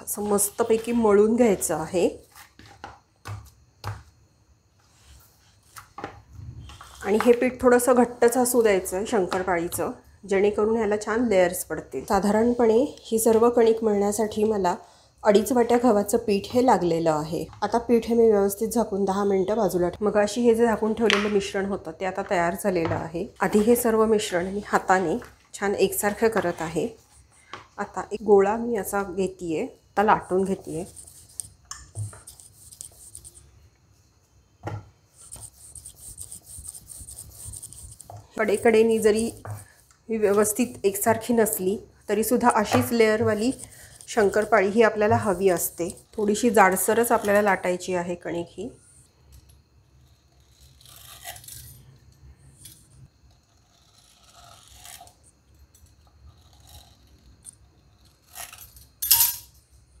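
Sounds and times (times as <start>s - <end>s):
rolling pin rolling dough: 34.6s - 47.8s
sharp scrape: 35.2s - 38.1s
scraping dough on wooden board: 35.2s - 40.5s.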